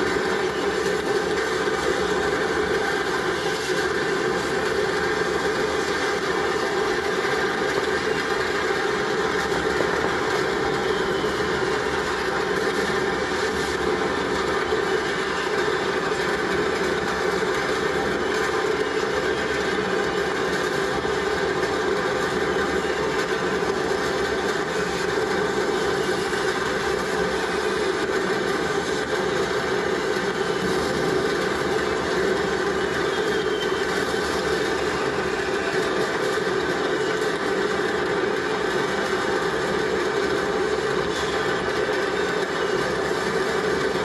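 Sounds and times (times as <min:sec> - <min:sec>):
fireworks rockets hissing: 0:22.9 - 0:39.6.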